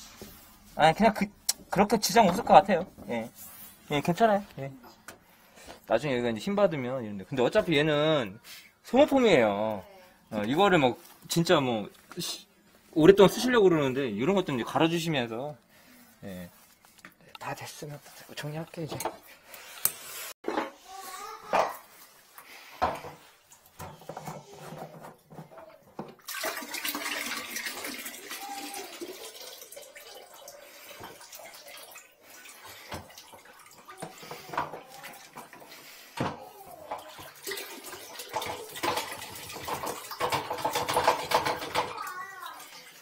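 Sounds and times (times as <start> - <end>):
water pouring into toilet bowl: 26.1 - 36.0, 36.7 - 43.0.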